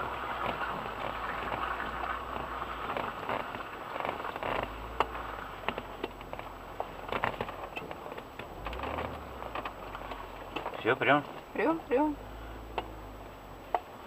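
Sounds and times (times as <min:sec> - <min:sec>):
vehicle body clicks knocks and creaks: 0:00.3 - 0:11.6, 0:12.6 - 0:13.0
low engine drone: 0:11.7 - 0:13.7.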